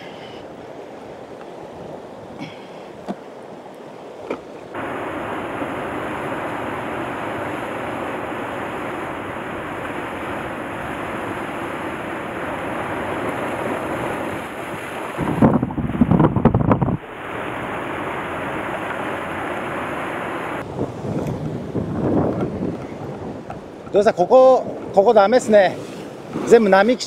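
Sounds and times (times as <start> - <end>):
waves washing over rocks: 0.0 - 27.0
wind on microphone: 4.8 - 25.0.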